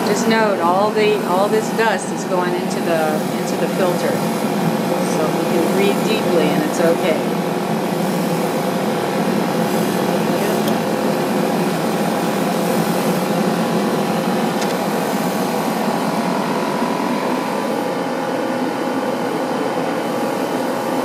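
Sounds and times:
extraction fan whirring: 0:00.0 - 0:21.0
airbrush spraying: 0:07.8 - 0:15.8.

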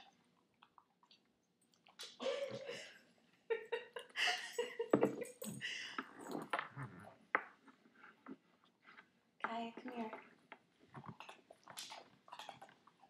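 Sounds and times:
dogs crunching biscuits: 0:10.2 - 0:13.0.

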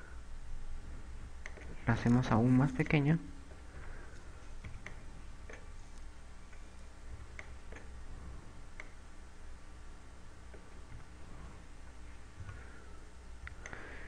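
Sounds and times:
low steady hum: 0:00.0 - 0:14.0
mouse and keyboard clicking: 0:01.4 - 0:01.8, 0:04.6 - 0:05.7, 0:06.5 - 0:07.9.

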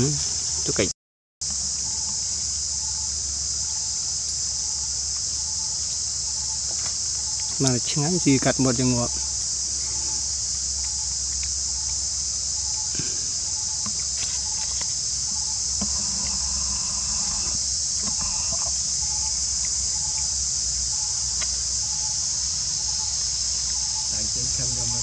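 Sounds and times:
insects shrilling: 0:00.0 - 0:25.0.

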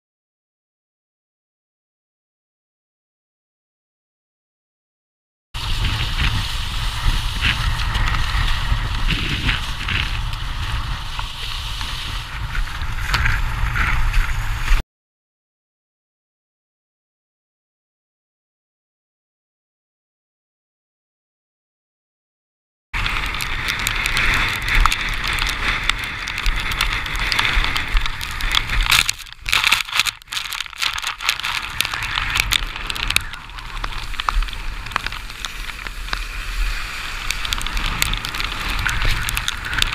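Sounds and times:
crackling spray: 0:05.6 - 0:14.8, 0:23.0 - 0:39.9
wind buffeting microphone: 0:05.6 - 0:14.8, 0:23.0 - 0:39.9
water splashes: 0:23.0 - 0:39.9.

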